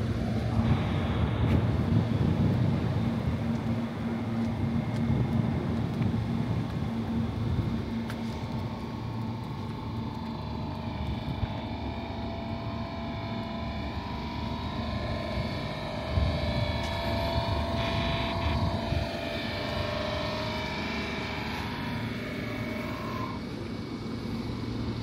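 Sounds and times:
train mechanical hum: 0:00.0 - 0:25.0
high whining tones: 0:06.8 - 0:23.9.

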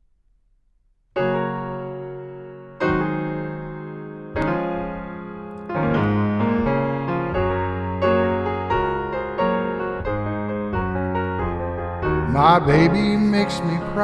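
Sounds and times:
grand piano playing: 0:01.2 - 0:14.0.

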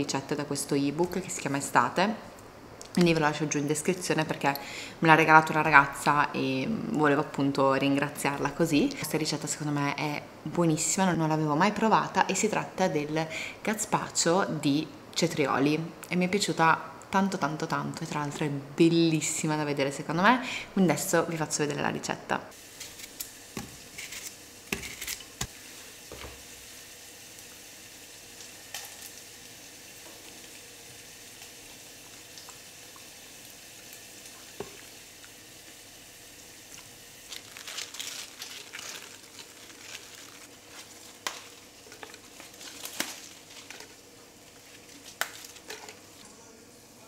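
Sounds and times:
crackly rustling of leaves: 0:22.6 - 0:26.0, 0:26.6 - 0:46.3.

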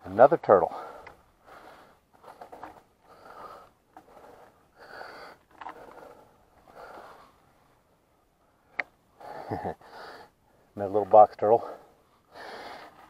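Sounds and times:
person breathing hard: 0:00.7 - 0:07.4, 0:09.2 - 0:10.7, 0:11.6 - 0:13.0.

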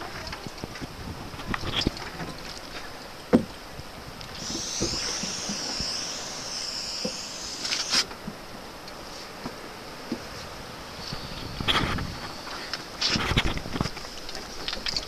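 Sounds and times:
high wavering whistle: 0:04.4 - 0:08.1.

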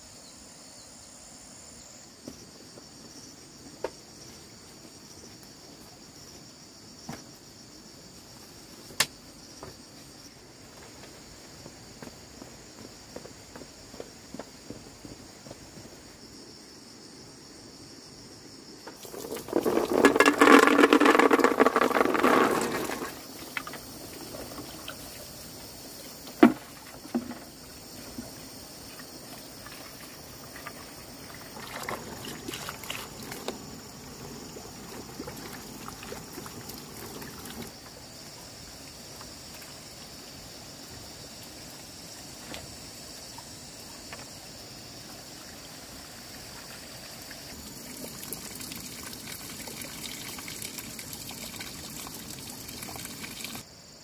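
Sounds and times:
hands rinsing peanuts in water: 0:18.9 - 0:25.3, 0:26.3 - 0:33.6, 0:45.9 - 0:53.6
water running from a hose: 0:18.9 - 0:33.6, 0:34.3 - 0:38.0, 0:45.1 - 0:53.6.

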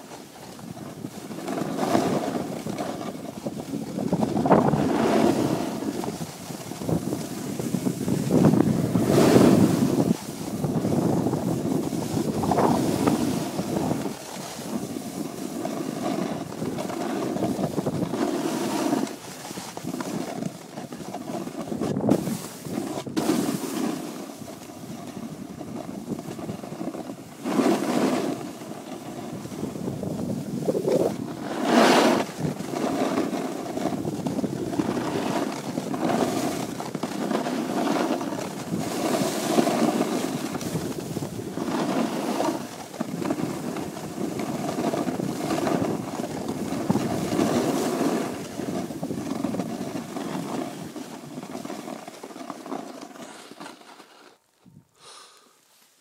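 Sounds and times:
skis scraping over snow: 0:00.0 - 0:56.0
wind buffeting microphone: 0:00.6 - 0:19.2, 0:21.2 - 0:23.6, 0:24.4 - 0:51.0.

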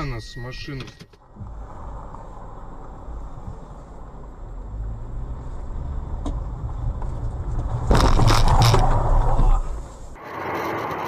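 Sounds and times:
car engine rumble: 0:00.0 - 0:10.2
crunching and scraping: 0:07.0 - 0:10.2.

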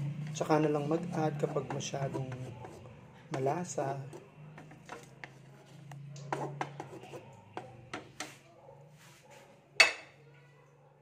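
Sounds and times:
metal cookware clinking: 0:09.8 - 0:10.2.

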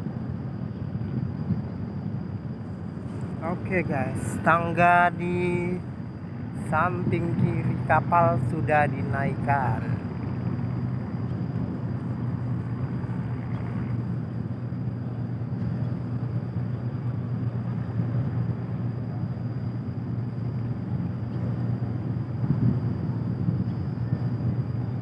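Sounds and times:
ship engines droning: 0:00.0 - 0:25.0.

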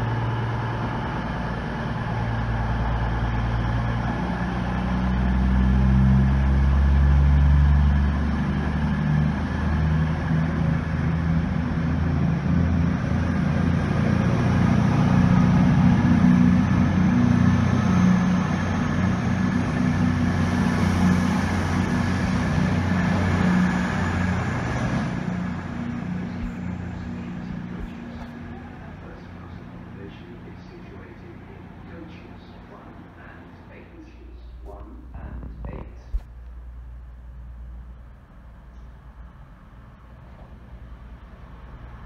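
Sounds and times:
wheel and rail noise: 0:00.0 - 0:35.6
diesel train engines working: 0:00.0 - 0:42.0.

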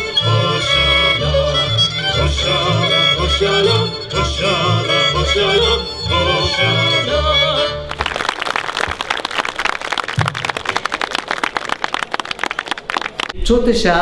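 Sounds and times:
folk band playing: 0:00.0 - 0:09.0
person singing: 0:00.1 - 0:07.9
audience applause: 0:07.9 - 0:13.4.

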